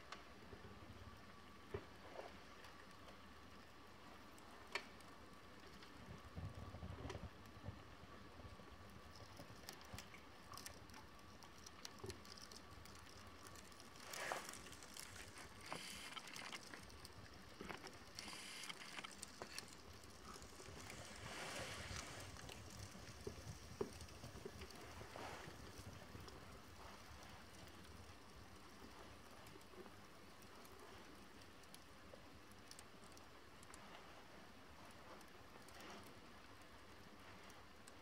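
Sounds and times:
paper crackling in fire: 0:02.3 - 0:34.1
flames rushing: 0:13.0 - 0:26.6.

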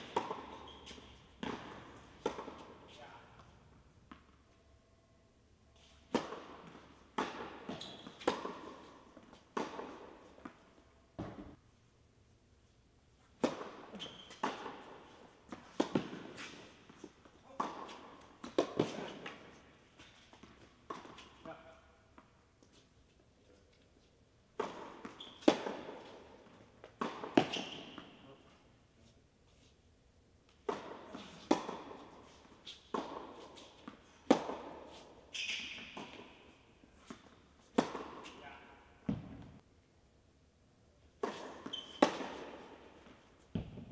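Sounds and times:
tennis ball hits and bounces: 0:00.0 - 0:04.4, 0:05.8 - 0:10.6, 0:11.2 - 0:11.5, 0:13.3 - 0:22.3, 0:24.5 - 0:28.2, 0:30.5 - 0:38.4, 0:39.0 - 0:39.6, 0:41.2 - 0:43.9
short high squeak: 0:00.5 - 0:01.2, 0:35.3 - 0:36.0, 0:41.7 - 0:42.0.

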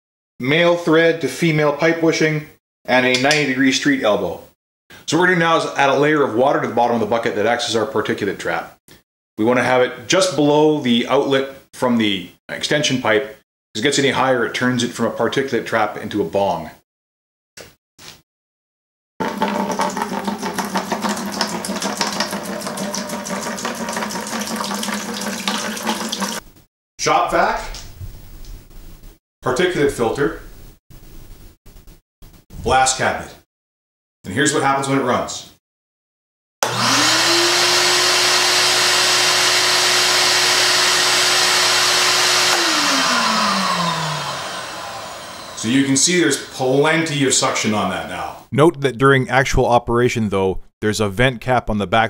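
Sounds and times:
shop vac running: 0:19.2 - 0:24.2, 0:36.6 - 0:47.1
water glugging into plastic bucket: 0:19.2 - 0:26.4
vacuum winding down: 0:36.6 - 0:46.9.

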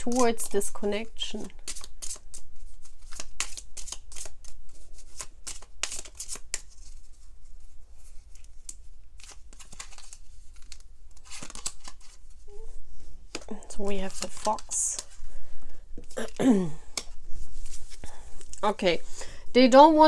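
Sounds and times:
cards being shuffled: 0:00.0 - 0:00.3, 0:01.6 - 0:15.3, 0:16.9 - 0:18.8.

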